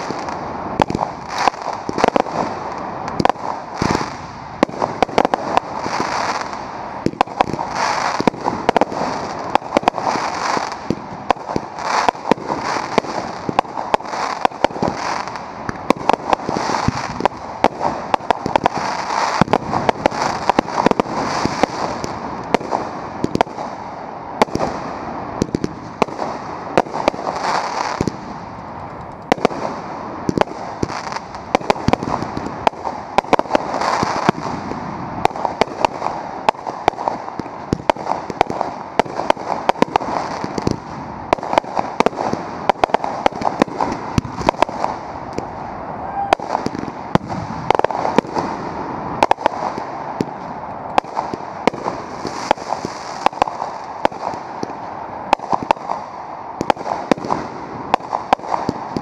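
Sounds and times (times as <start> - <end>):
fireworks bangs: 0.0 - 59.0
fireworks crackling: 0.0 - 59.0.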